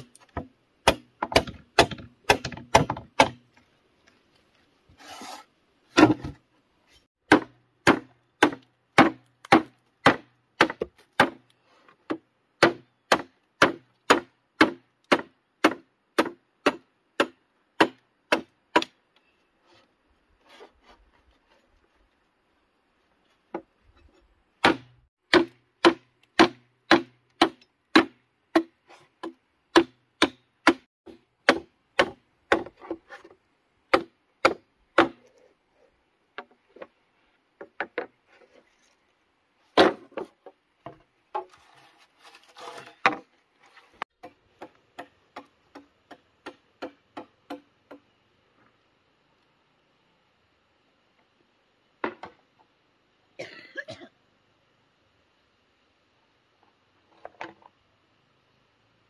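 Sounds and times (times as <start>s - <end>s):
machete chopping bamboo: 0.0s - 3.5s, 5.9s - 6.4s, 7.3s - 11.4s, 12.1s - 19.0s, 24.6s - 33.0s, 33.9s - 35.2s, 39.8s - 40.2s.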